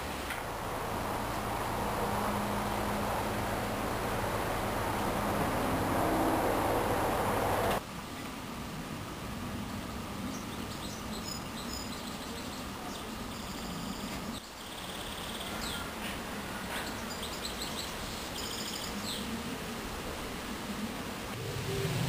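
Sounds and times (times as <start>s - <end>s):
steady ambient hiss: 0.0s - 22.0s
small birds chirping and trilling: 10.3s - 16.1s, 16.7s - 19.3s.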